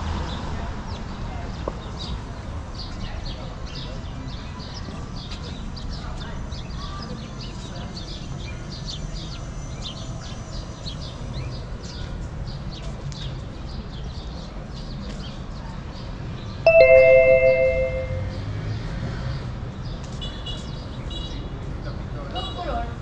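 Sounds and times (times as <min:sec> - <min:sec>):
street background noise: 0:00.0 - 0:23.0
faint high chirping: 0:16.7 - 0:18.4
loud bell ding: 0:16.7 - 0:18.5.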